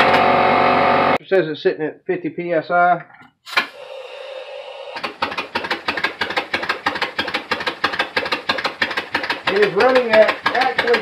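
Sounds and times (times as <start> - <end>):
air hissing: 3.5 - 9.5
air engine exhaust puffs: 3.5 - 11.0.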